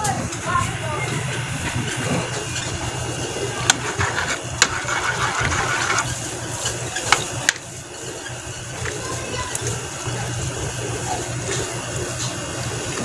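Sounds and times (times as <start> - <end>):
steady low hum: 0.0 - 13.0
metal spoon scraping a pan: 3.6 - 6.2.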